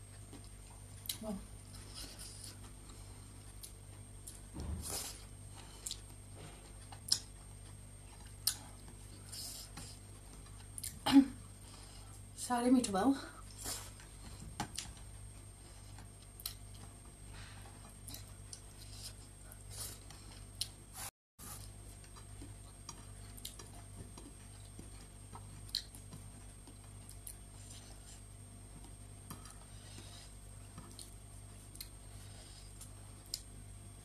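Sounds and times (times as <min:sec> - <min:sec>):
soft chewing: 0:00.0 - 0:12.4, 0:13.3 - 0:34.0
small clicks and smacks: 0:14.6 - 0:15.2, 0:28.8 - 0:29.7.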